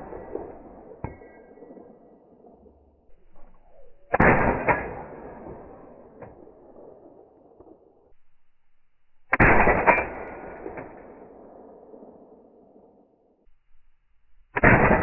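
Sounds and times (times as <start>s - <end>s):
sharp crack with echo: 0.0s - 8.1s, 9.3s - 13.1s, 14.5s - 15.0s
suppressed rifle shots: 3.3s - 7.9s, 9.3s - 12.9s, 14.6s - 15.0s.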